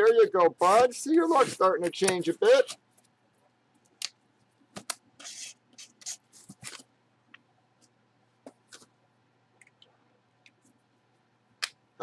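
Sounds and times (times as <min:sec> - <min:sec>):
packaging rustling and scraping: 0:05.2 - 0:06.9.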